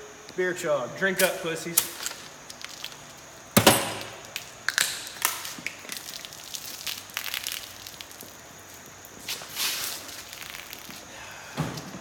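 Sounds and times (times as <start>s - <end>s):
small cracks and clicks: 1.2s - 3.2s, 4.2s - 8.4s.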